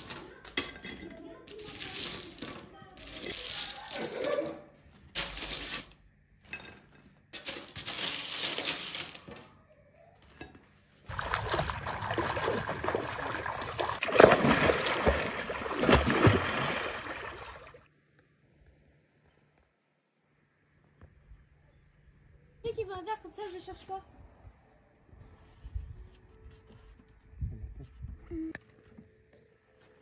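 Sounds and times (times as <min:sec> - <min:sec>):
pool water splashing: 0:11.1 - 0:17.9.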